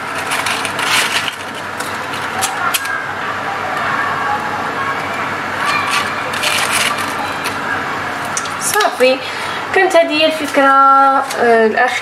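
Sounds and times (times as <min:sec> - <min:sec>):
paper rustling against coals: 0:00.0 - 0:03.0, 0:05.6 - 0:07.7.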